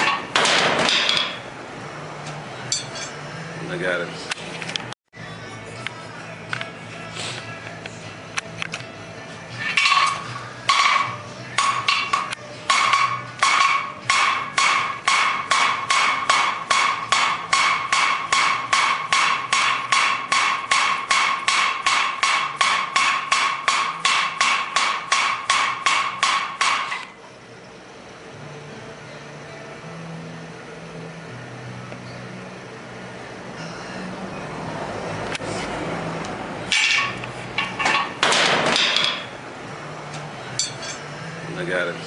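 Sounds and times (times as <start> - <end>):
hammer ringing on anvil: 2.7 - 3.2, 9.8 - 27.0, 40.5 - 41.1.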